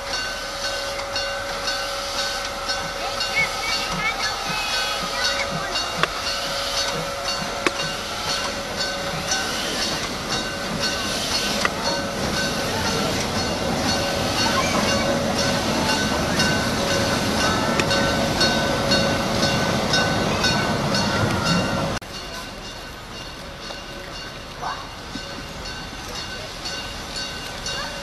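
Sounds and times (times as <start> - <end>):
train rolling over bridge: 0.0 - 28.0.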